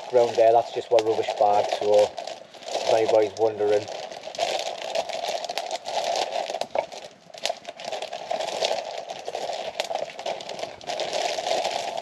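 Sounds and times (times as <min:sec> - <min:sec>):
sharp fire pops: 0:00.0 - 0:02.2
fire hiss: 0:00.0 - 0:04.4
campfire crackling: 0:00.0 - 0:12.0.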